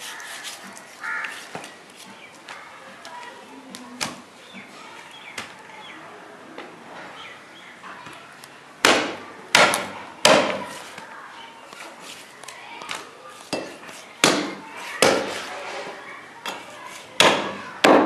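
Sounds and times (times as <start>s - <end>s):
cleaver chopping on wooden block: 8.8s - 10.7s, 13.6s - 15.4s, 17.2s - 18.0s.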